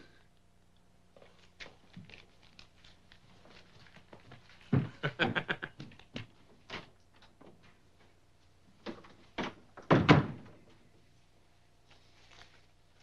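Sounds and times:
door closing thud: 9.4s - 10.5s.

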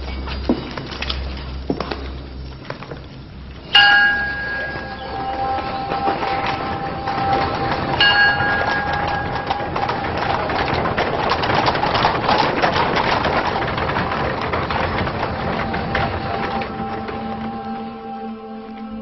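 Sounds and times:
busy clatter: 0.0s - 19.0s
struck bell ringing: 3.7s - 12.3s.

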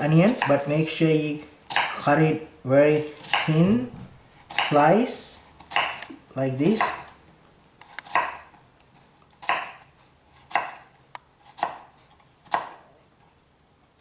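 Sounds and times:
knife slicing onion on board: 0.0s - 0.7s, 1.6s - 2.2s, 2.9s - 7.2s, 7.8s - 8.6s, 9.3s - 13.0s.

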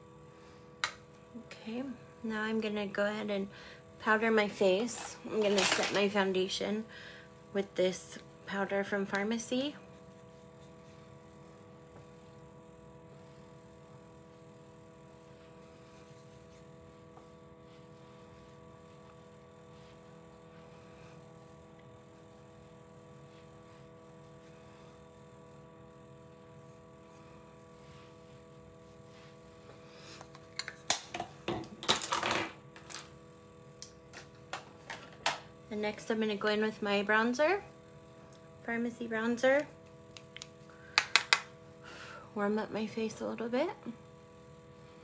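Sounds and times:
faint steady hum with held tones: 0.0s - 45.0s
makeup items clattering: 4.9s - 6.0s.

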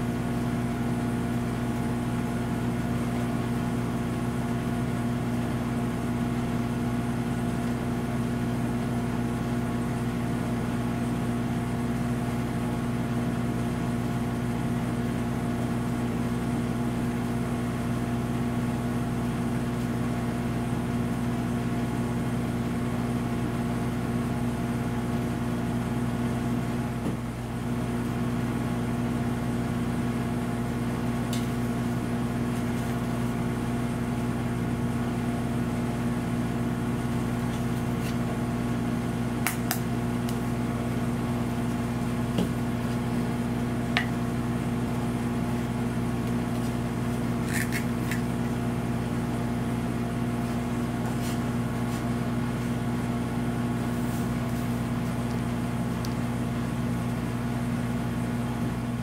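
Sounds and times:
low machine hum: 0.0s - 59.0s.

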